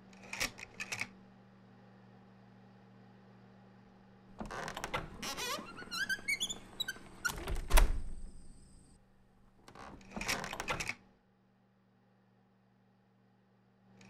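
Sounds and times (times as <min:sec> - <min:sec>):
short squeaks rising in pitch: 0:05.2 - 0:07.4.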